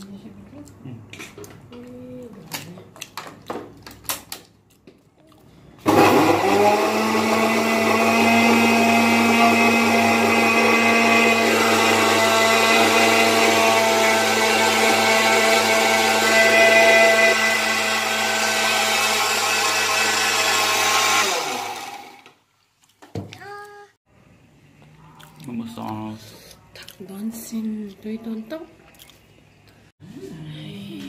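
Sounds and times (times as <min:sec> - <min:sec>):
electric blender running: 0:05.8 - 0:22.4
mixer grinder motor whining: 0:05.8 - 0:22.4.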